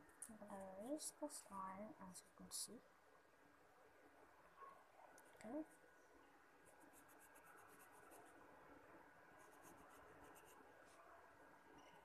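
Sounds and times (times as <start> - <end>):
pencil scratching on paper: 6.6 - 8.4, 9.4 - 10.7.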